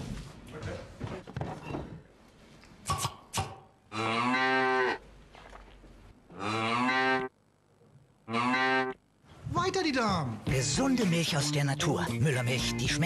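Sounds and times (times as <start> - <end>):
cow mooing: 3.9 - 5.0, 6.3 - 7.3, 8.3 - 9.0.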